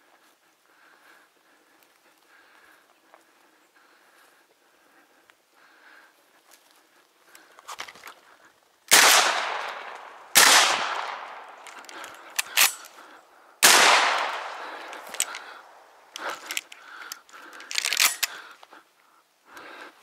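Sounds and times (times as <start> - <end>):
shotgun shots echoing: 8.9 - 12.8, 13.6 - 15.8.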